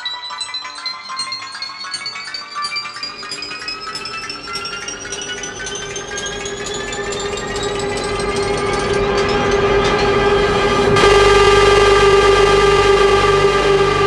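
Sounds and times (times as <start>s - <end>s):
wheels clicking on track: 0.0s - 12.5s
steady hum: 3.1s - 14.0s
train motors whining: 3.2s - 14.0s.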